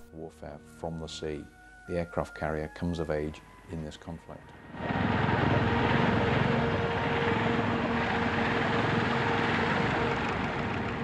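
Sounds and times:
propeller plane engine drone: 0:04.5 - 0:11.0.

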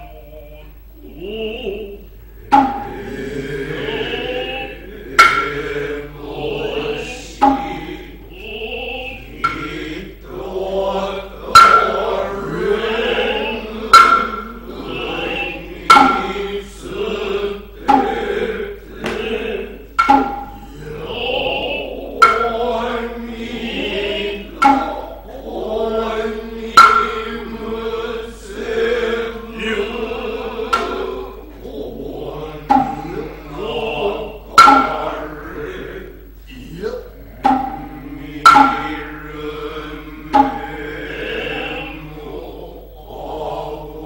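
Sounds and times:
wavering chanting: 0:00.0 - 0:44.0
hand drum strikes: 0:02.5 - 0:03.0, 0:05.2 - 0:05.5, 0:07.4 - 0:07.9, 0:11.5 - 0:12.1, 0:13.9 - 0:14.7, 0:15.8 - 0:16.4, 0:17.8 - 0:18.3, 0:20.0 - 0:20.8, 0:22.2 - 0:22.6, 0:24.5 - 0:25.1, 0:26.7 - 0:27.5, 0:30.7 - 0:31.0, 0:32.7 - 0:33.3, 0:34.5 - 0:35.4, 0:37.3 - 0:39.3, 0:40.0 - 0:40.8.

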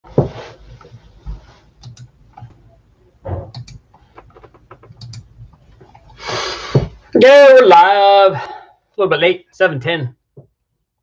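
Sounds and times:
typing on keyboard: 0:03.5 - 0:05.4.

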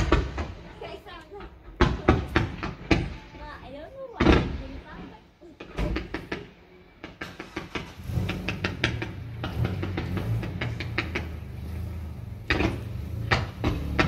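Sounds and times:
fireworks bangs and crackles: 0:00.0 - 0:00.9, 0:01.7 - 0:05.2.

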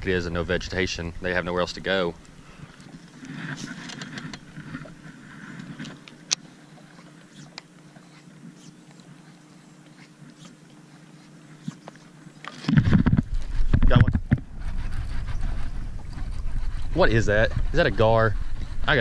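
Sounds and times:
steady low hum: 0:00.0 - 0:19.0
fishing line casting out: 0:01.6 - 0:13.7.

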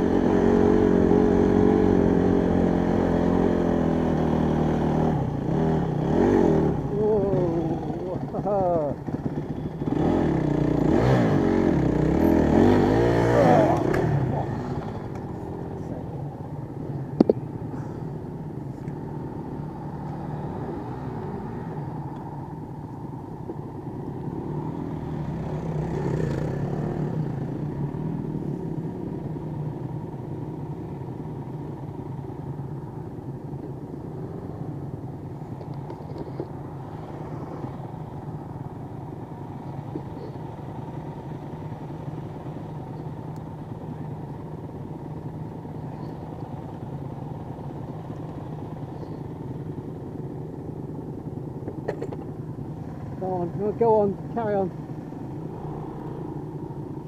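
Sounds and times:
dirt bike engine running: 0:00.0 - 0:21.1.

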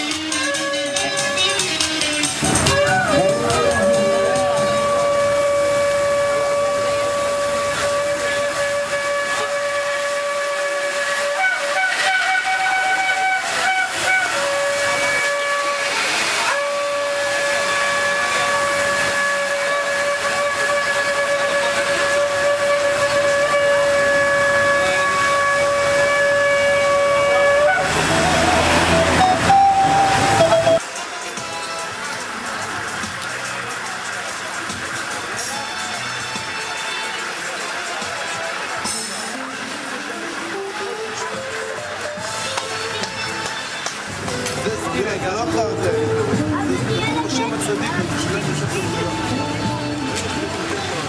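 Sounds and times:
shofar blasts: 0:00.2 - 0:30.8.

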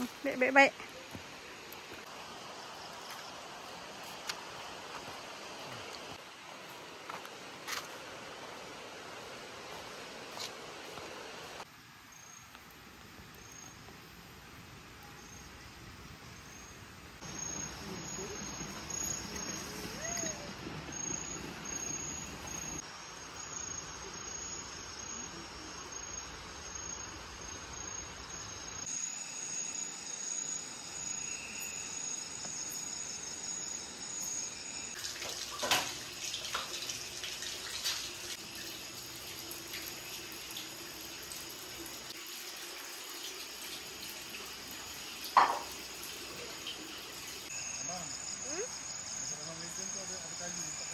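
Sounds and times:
high insect drone: 0:16.4 - 0:50.9.

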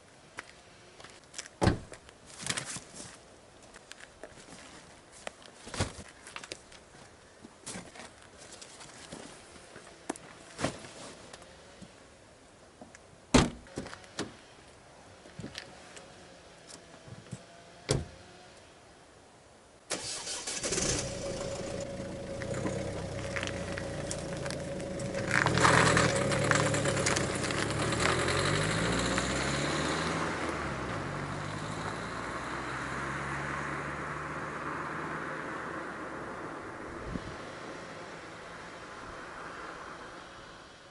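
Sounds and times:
tyre and road noise: 0:00.0 - 0:18.9, 0:19.9 - 0:40.9
car boot lid slamming: 0:01.6 - 0:01.9, 0:13.3 - 0:13.6
car engine running: 0:21.0 - 0:32.3.

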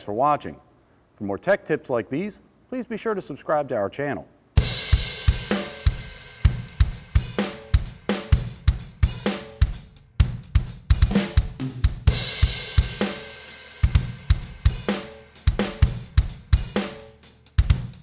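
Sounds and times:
music with drum-kit beat: 0:04.6 - 0:18.0.

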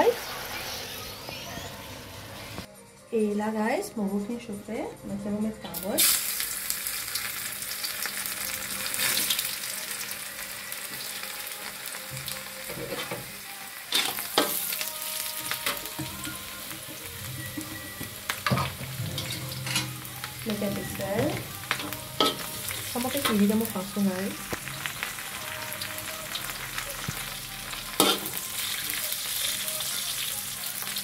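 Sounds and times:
carrots sizzling in hot oil: 0:00.0 - 0:01.6, 0:05.7 - 0:31.0
spatula scraping a wok: 0:18.5 - 0:20.0.

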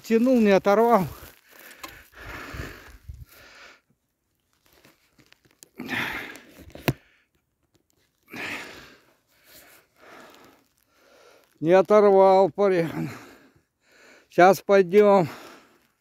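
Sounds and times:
footsteps crunching in snow: 0:00.0 - 0:03.6, 0:04.3 - 0:05.9.

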